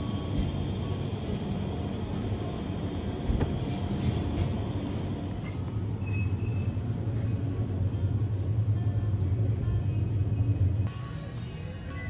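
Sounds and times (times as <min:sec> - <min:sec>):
low hum and rumble: 0:00.0 - 0:11.6
music: 0:07.2 - 0:12.0.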